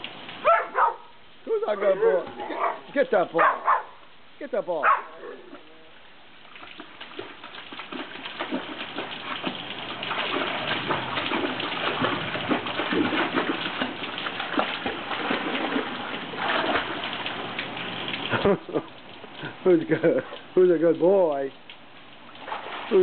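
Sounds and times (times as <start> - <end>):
dog splashing in water: 6.4 - 20.6, 21.6 - 23.0.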